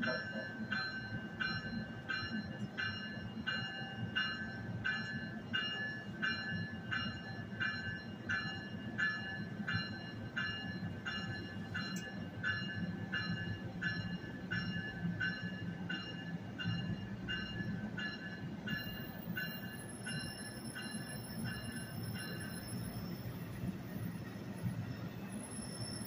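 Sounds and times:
train rumbling: 0:00.0 - 0:26.0
train warning bell ringing: 0:00.0 - 0:26.0.

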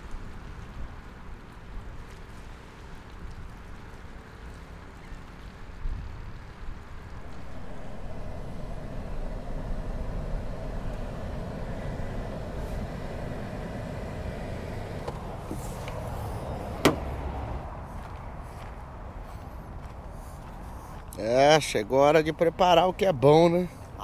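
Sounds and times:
car engine and road noise: 0:07.0 - 0:20.9.

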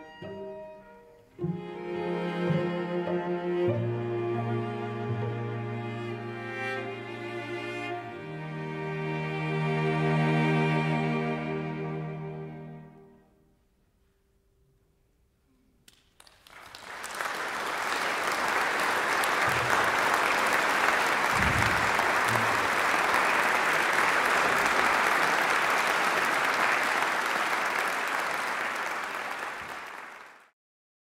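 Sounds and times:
audience applauding: 0:15.9 - 0:30.6.

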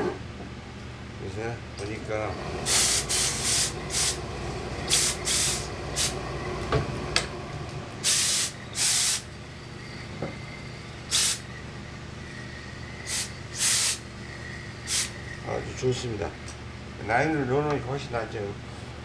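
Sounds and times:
steam iron hissing bursts: 0:02.6 - 0:04.2, 0:04.9 - 0:06.2, 0:08.0 - 0:09.3, 0:11.1 - 0:11.5, 0:13.0 - 0:14.1, 0:14.9 - 0:15.2.

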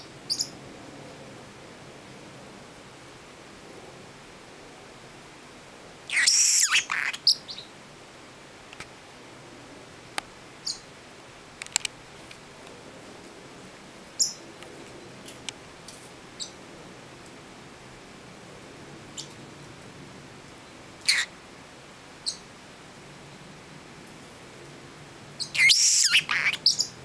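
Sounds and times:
parrotlet calling: 0:06.1 - 0:07.7, 0:21.0 - 0:21.3, 0:25.4 - 0:27.0
faint clicks: 0:11.6 - 0:12.8.

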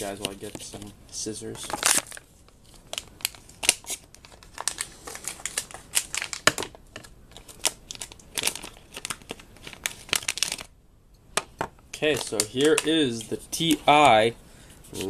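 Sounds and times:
plastic packaging crinkling: 0:01.5 - 0:10.7.

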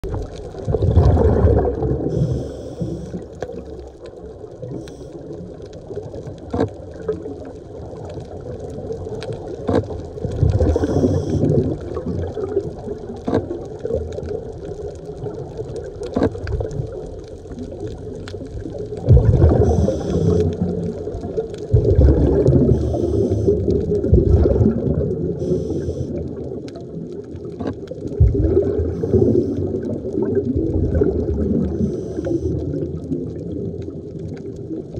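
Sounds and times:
exhaled bubbles gurgling underwater: 0:00.0 - 0:34.9
regulator inhalation hiss: 0:02.1 - 0:03.2, 0:10.7 - 0:11.5, 0:19.6 - 0:20.6, 0:22.7 - 0:23.6, 0:25.4 - 0:26.1, 0:29.0 - 0:29.6, 0:31.7 - 0:32.6.

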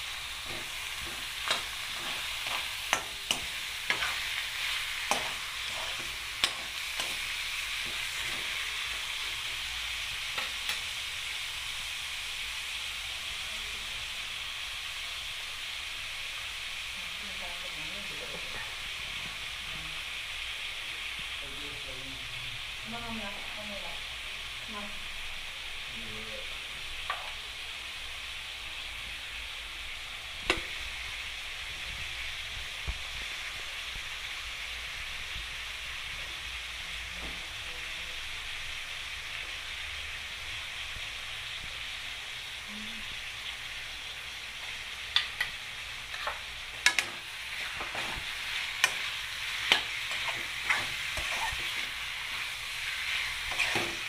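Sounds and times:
chicken and onions sizzling in oil: 0:00.0 - 0:54.0
metal spoon scraping a pan: 0:00.4 - 0:09.0, 0:45.1 - 0:54.0.

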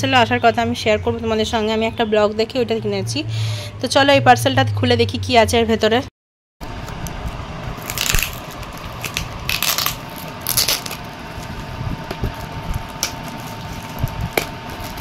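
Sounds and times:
plastic wrapping rustling and tearing: 0:06.9 - 0:15.0.

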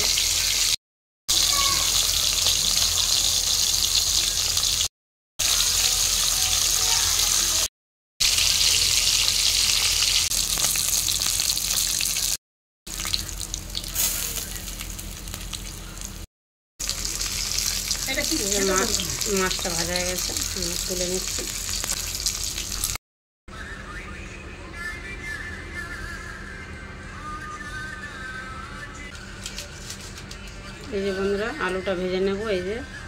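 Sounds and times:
fish frying in hot oil: 0:00.0 - 0:16.2, 0:16.8 - 0:23.0.

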